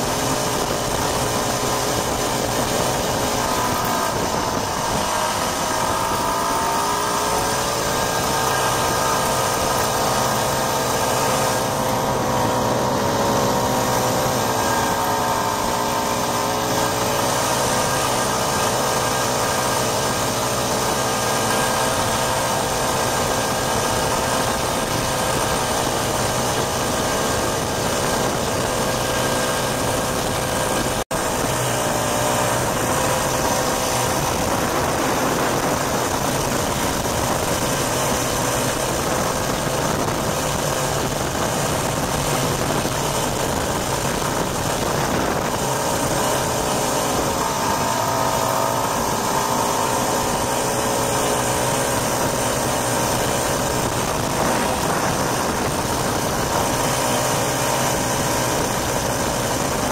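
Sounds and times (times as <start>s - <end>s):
snowmobile engine running: 0.0s - 59.9s.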